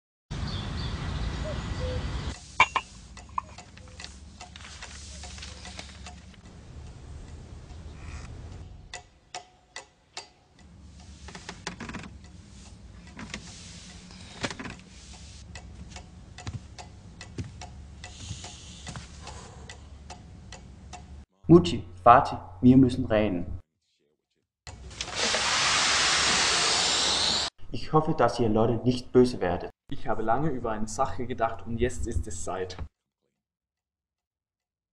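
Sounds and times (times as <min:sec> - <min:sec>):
clock ticking: 0:14.7 - 0:21.2.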